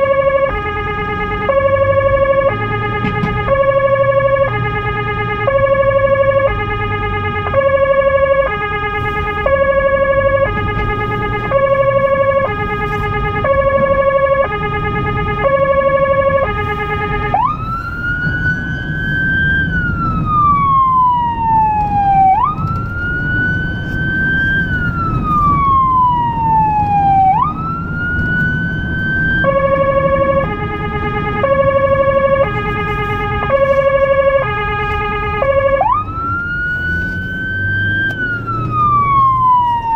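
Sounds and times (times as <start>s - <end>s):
electronic emergency siren: 0.0s - 39.9s
engine and road rumble: 0.0s - 39.9s.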